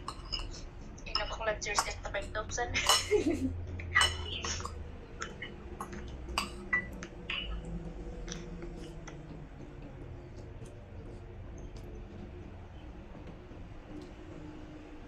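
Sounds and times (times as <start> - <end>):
cutlery clinking on ceramic plate: 2.8 - 3.3, 3.9 - 4.8.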